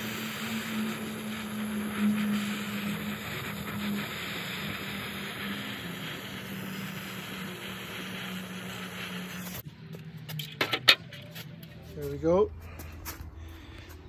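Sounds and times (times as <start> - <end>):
gas torch hissing: 0.0 - 9.7.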